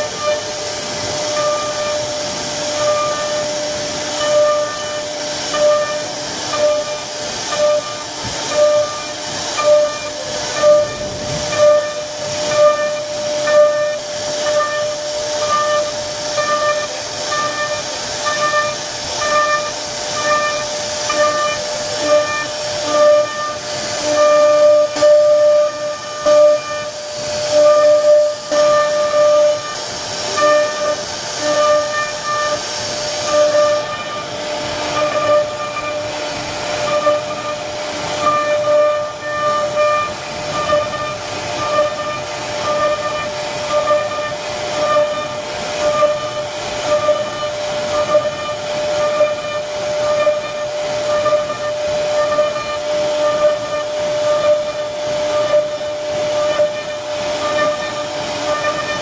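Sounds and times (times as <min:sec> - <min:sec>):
bit cutting wood hiss: 0:00.0 - 0:59.0
router spindle whining: 0:00.0 - 0:59.0.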